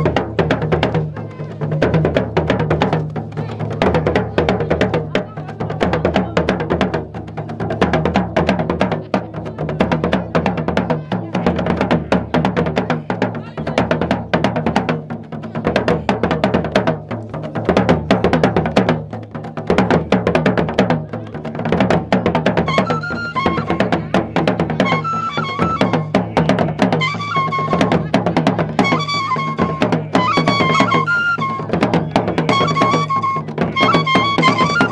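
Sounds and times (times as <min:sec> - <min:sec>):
drum ensemble fast rhythm: 0:00.0 - 0:34.9
high piping wind instruments: 0:22.6 - 0:24.0, 0:24.8 - 0:26.2, 0:26.9 - 0:34.9.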